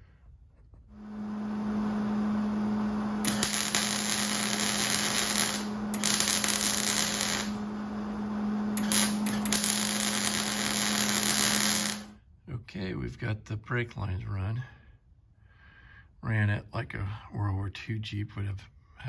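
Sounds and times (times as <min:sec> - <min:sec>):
steady electrical hum: 0:00.9 - 0:12.2
welding arc crackling: 0:03.1 - 0:07.8, 0:08.7 - 0:12.2.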